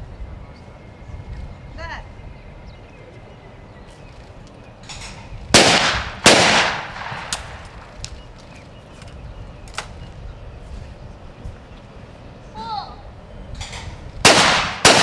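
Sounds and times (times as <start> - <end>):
shotgun shots with echo: 5.6 - 7.8, 14.2 - 15.0.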